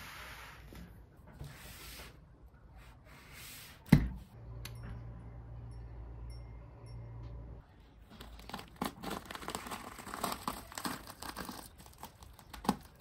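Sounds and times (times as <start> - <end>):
low steady hum: 4.0 - 9.3.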